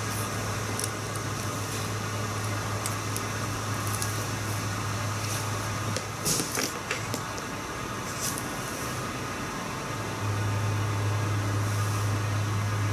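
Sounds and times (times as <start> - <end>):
paper liner crinkling and scraping: 0.0 - 8.6
low room hum: 0.0 - 12.9.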